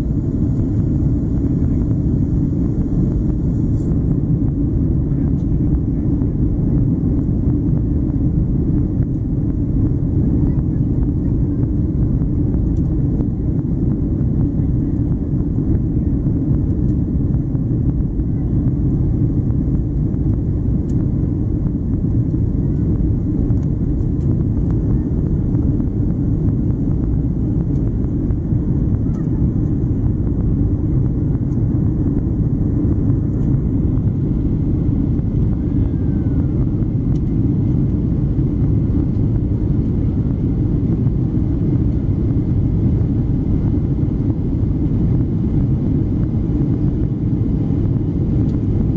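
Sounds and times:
rushing air: 0.0 - 4.6
jet engine rumble in cabin: 0.0 - 48.9.

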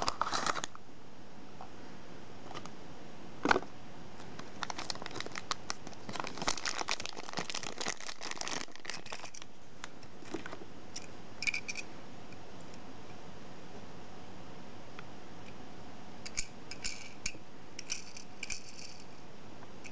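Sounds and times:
plastic bag crinkling: 4.4 - 9.5.

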